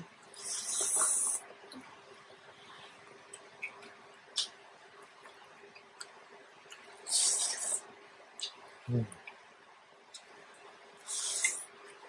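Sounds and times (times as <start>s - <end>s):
quiet chewing with wet clicks: 3.3s - 7.1s, 8.3s - 9.5s, 10.1s - 10.4s.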